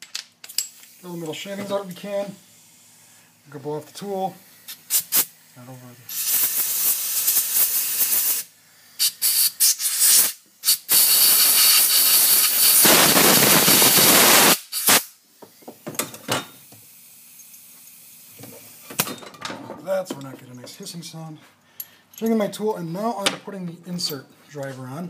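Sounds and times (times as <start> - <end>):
compressed air hissing: 2.1 - 15.8.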